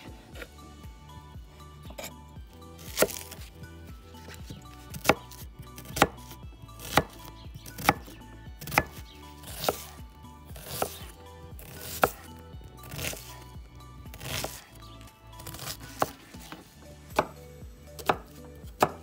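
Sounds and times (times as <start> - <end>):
quiet background music: 0.0 - 19.0
knife chopping onion on wooden board: 2.8 - 3.6, 4.2 - 10.0, 10.6 - 13.4, 14.1 - 14.7, 15.4 - 17.4, 18.0 - 19.0.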